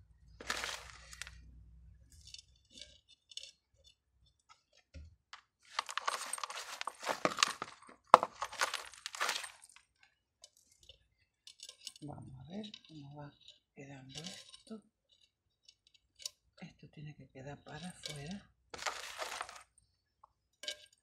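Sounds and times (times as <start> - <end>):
crunchy rattling: 0.3 - 1.4, 2.1 - 4.8, 5.6 - 16.4, 17.7 - 19.8
trowel scooping gritty soil: 0.4 - 1.4, 5.7 - 9.7, 17.8 - 19.6.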